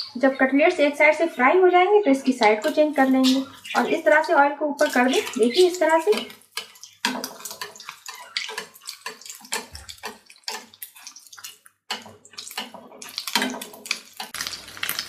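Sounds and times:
chicken frying in hot oil: 0.0s - 15.0s
spoon ladling hot oil: 2.4s - 15.0s.

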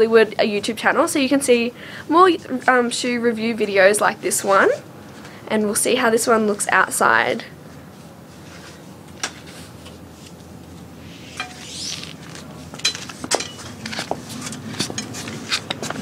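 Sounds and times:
short hiss: 11.0s - 12.3s.

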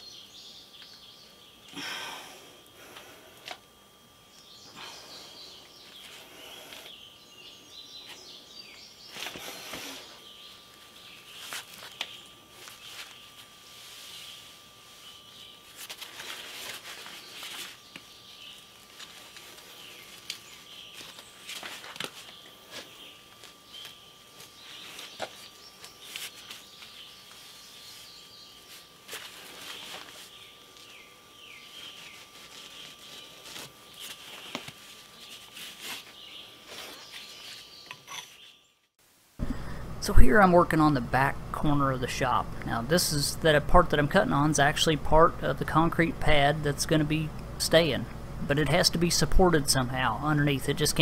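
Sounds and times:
wildlife chirping in trees: 0.0s - 2.7s, 4.2s - 21.6s, 22.2s - 29.0s, 29.6s - 34.4s, 36.1s - 38.8s.

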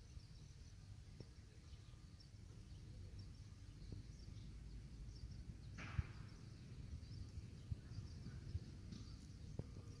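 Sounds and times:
rustle with low thump: 3.8s - 10.0s.

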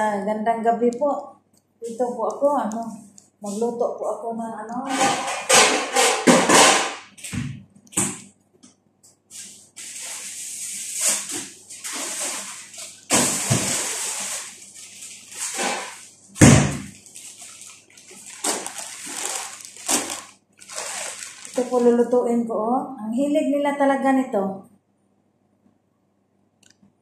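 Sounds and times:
water running: 9.8s - 22.4s.

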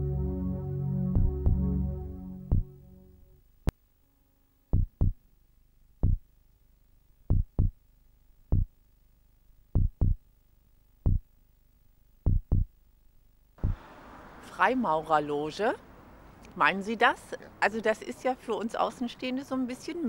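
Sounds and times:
deep low thumps: 0.0s - 3.0s, 4.7s - 5.2s, 6.0s - 6.3s, 7.3s - 7.8s, 8.5s - 8.8s, 9.7s - 10.2s, 11.0s - 11.3s, 12.2s - 12.7s, 13.6s - 13.8s.

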